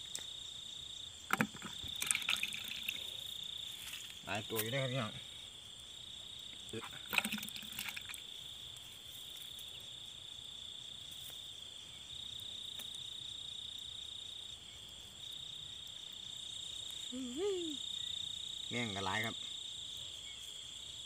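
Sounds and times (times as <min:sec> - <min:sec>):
crickets trilling: 0:00.0 - 0:21.0.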